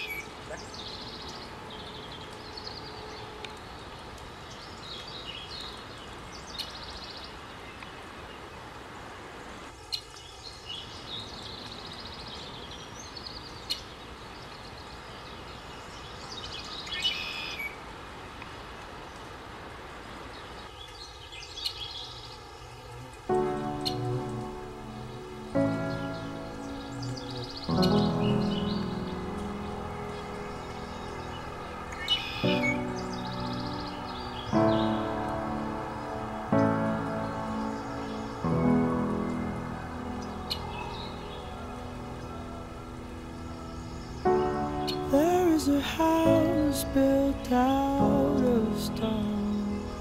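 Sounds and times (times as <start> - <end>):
small birds chirping: 0.0 - 8.6, 20.2 - 50.0
outdoor background hiss: 0.0 - 50.0.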